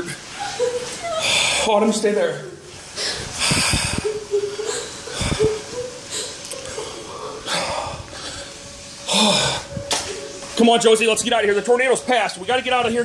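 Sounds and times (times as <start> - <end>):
rustling noise: 0.0 - 1.2, 2.6 - 13.0
person breathing heavily with wheeze: 2.9 - 9.9.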